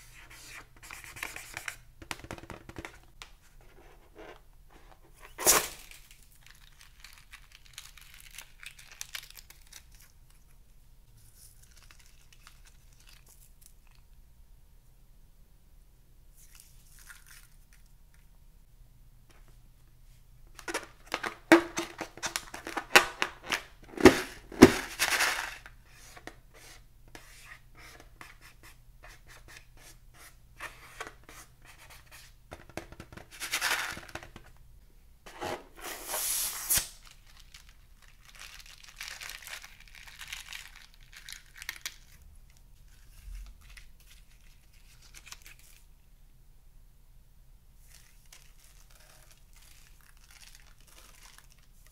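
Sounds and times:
crinkling handling noises: 0.3 - 14.0, 19.3 - 26.4, 32.6 - 34.6, 35.3 - 45.9, 47.8 - 51.9.

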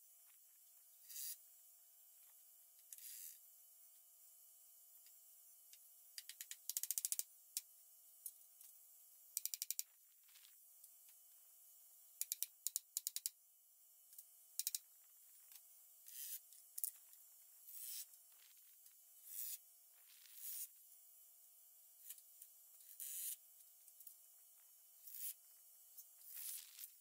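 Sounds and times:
rapid tool clicking: 6.2 - 7.3, 9.4 - 9.9, 12.2 - 13.4, 14.6 - 14.8.

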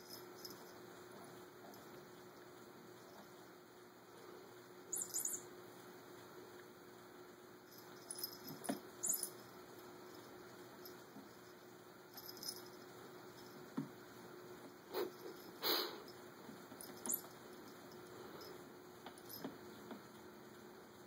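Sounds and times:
metallic jingling clinks: 7.8 - 9.4.

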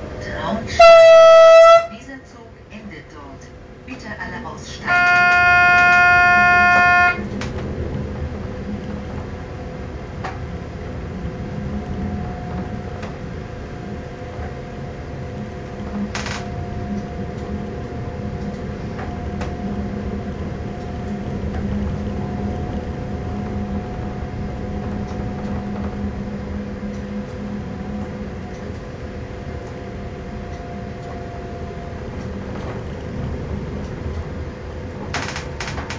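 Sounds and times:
faint whine: 0.0 - 35.9
train rumble: 0.0 - 35.9
train horn blast: 0.7 - 2.0, 4.8 - 7.5
rail clacks: 3.8 - 35.9.

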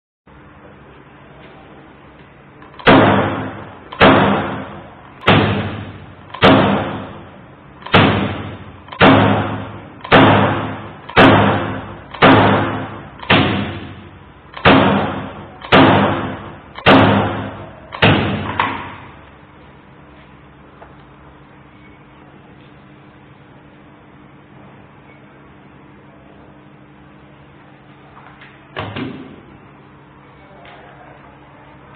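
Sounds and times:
electric stapler clacking: 2.6 - 3.2, 3.8 - 4.4, 6.3 - 6.8, 7.8 - 9.4, 10.0 - 15.0, 15.6 - 16.0, 16.7 - 17.2, 17.9 - 19.0.

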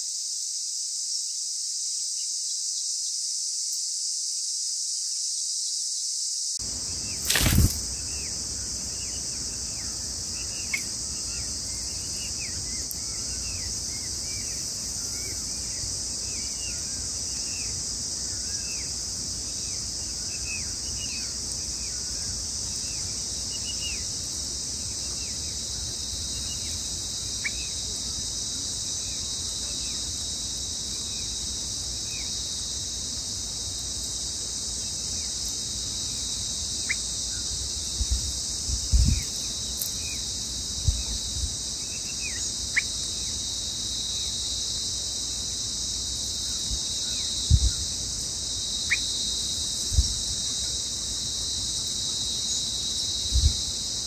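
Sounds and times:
insects droning: 0.0 - 54.0
short falling bird chirps: 7.0 - 8.3.

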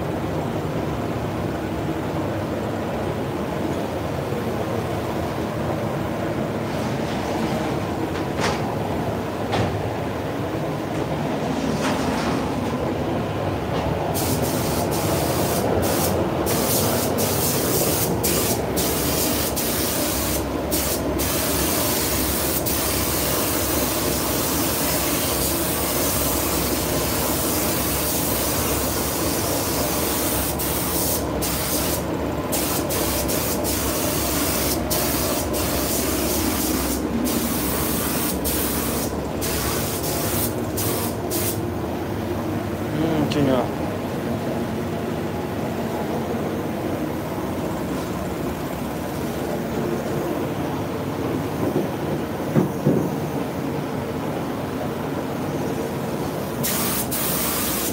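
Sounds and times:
paint spray gun hissing: 14.2 - 41.6, 56.6 - 57.9.

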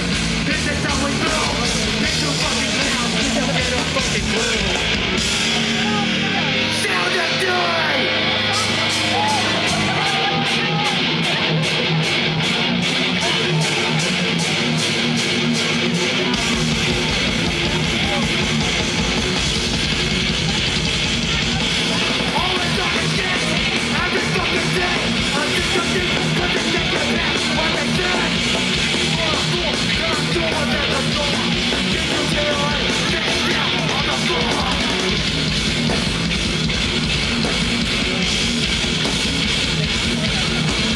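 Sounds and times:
distorted electric guitar riffing: 0.0 - 40.9
fast drums: 0.0 - 40.9
heavy bass and kick drum: 0.0 - 40.9.

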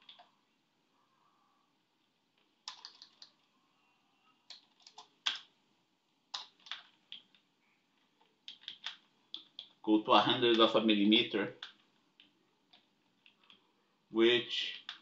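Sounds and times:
typing on computer keyboard: 0.0 - 0.3, 2.6 - 3.4, 4.5 - 5.5, 6.3 - 7.4, 8.2 - 9.8.

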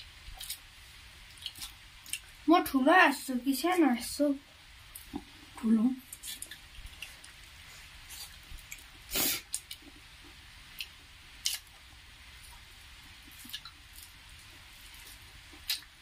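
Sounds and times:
fingers squishing food: 1.3 - 2.4, 4.9 - 16.0
lip smacks from chewing: 14.9 - 15.9.

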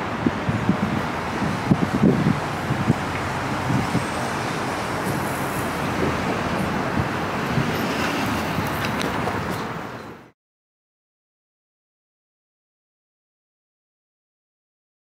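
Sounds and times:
city street traffic: 0.0 - 10.4.

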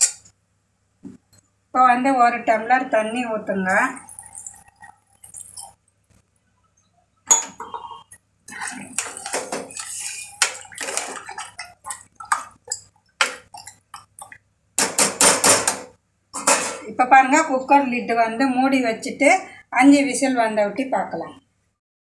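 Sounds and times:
liquid sloshing: 3.8 - 6.0, 8.5 - 14.5.

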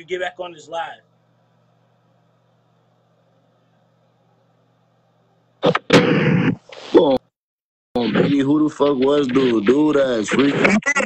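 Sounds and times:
faint steady hum: 0.0 - 7.3
loud harsh burst: 5.6 - 7.0.

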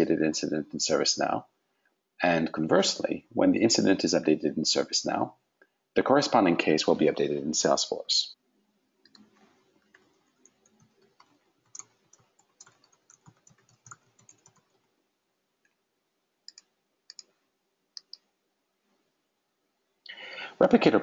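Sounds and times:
typing on computer keyboard: 9.1 - 14.9, 16.5 - 17.3.

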